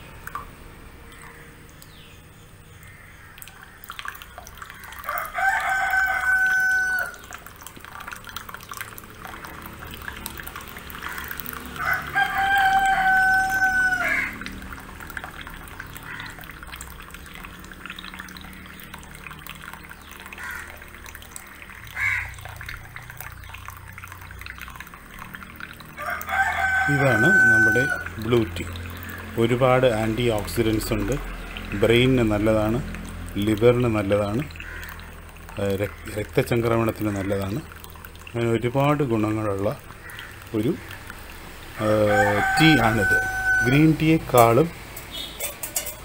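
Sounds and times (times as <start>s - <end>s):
tea pouring into a glass: 0.0s - 46.0s
rooster crowing: 4.9s - 7.3s, 11.8s - 14.6s, 26.0s - 28.4s, 41.8s - 44.5s.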